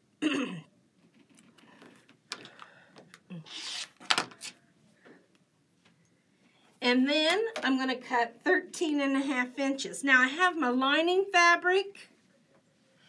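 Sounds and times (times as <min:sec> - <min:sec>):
ruler and fabric rubbing: 0:03.5 - 0:04.6.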